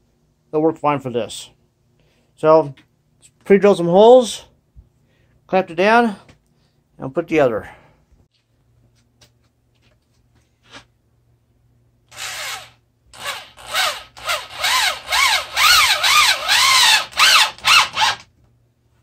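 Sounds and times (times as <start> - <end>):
electric drill boring into wood: 12.1 - 18.3.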